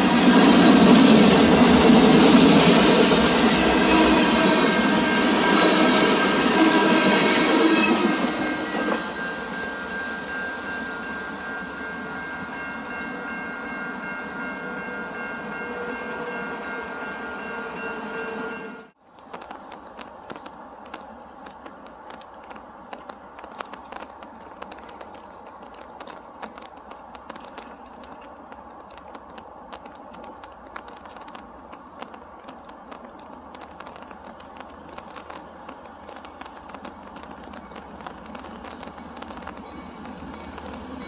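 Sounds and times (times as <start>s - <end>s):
sharp clicks and crackles: 19.0s - 41.0s.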